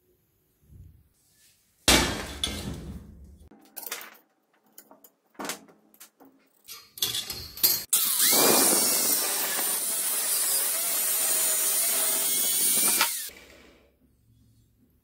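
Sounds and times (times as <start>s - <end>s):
metal pieces knocking and clicking: 3.5s - 7.9s.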